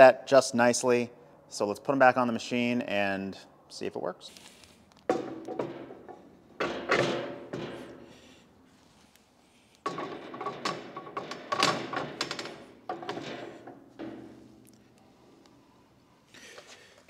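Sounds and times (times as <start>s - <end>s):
metal knocks: 5.1s - 8.1s, 9.8s - 14.9s.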